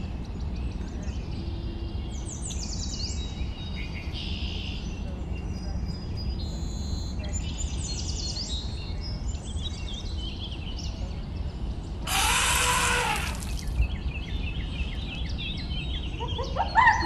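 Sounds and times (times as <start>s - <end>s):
birds chirping: 5.6s - 17.0s.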